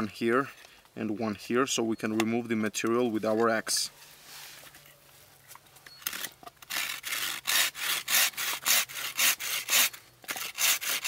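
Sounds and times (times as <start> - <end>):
hand saw cutting wood: 6.2 - 11.0.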